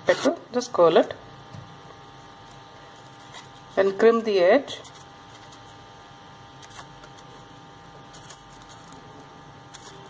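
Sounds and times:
steady background hum: 0.0s - 10.0s
crepe paper crinkling: 4.8s - 5.8s, 6.6s - 10.0s.

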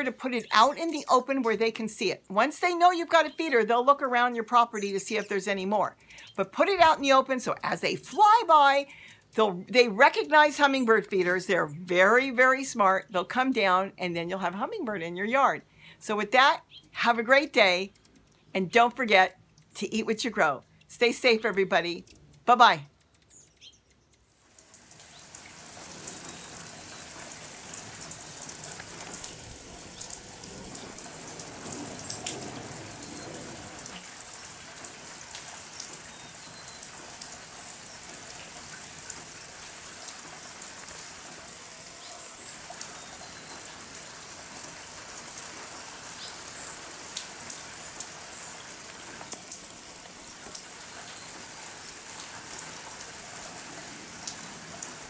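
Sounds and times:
steady rain falling: 24.3s - 55.0s.

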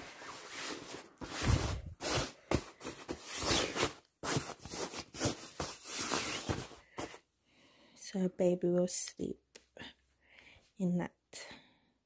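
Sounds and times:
fabric and plastic packaging rustling: 0.0s - 7.2s.

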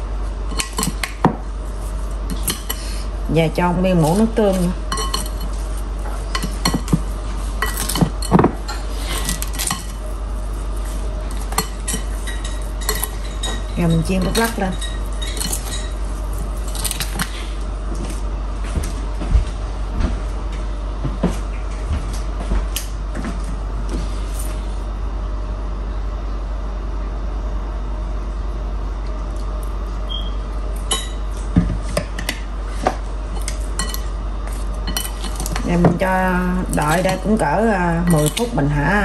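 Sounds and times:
steady low hum: 0.0s - 39.0s
utensils and dishes clinking: 0.5s - 1.4s, 2.3s - 3.1s, 3.9s - 10.1s, 10.8s - 17.4s, 30.1s - 31.3s, 33.4s - 36.1s, 36.7s - 39.0s.

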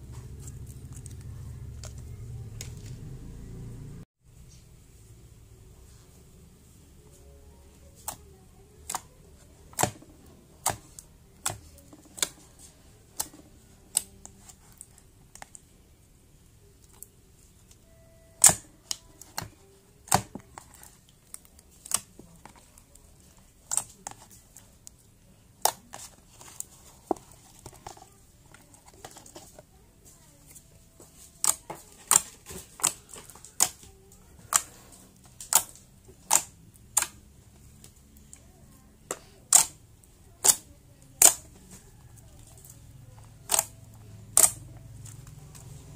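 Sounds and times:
slime clicking and popping: 41.2s - 41.4s, 43.4s - 44.6s.

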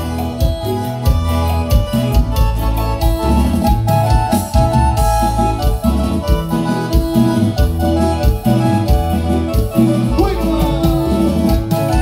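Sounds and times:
bass beat: 0.0s - 12.0s
harmonica melody: 0.0s - 12.0s
keyboard: 0.0s - 12.0s.

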